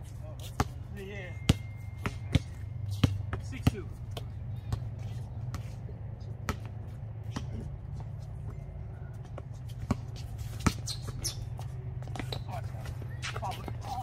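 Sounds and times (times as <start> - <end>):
footsteps and shoe scuffs: 0.0 - 0.8
steady low hum: 0.0 - 14.0
basketball bouncing on concrete: 0.4 - 5.8, 6.4 - 8.1, 9.2 - 14.0.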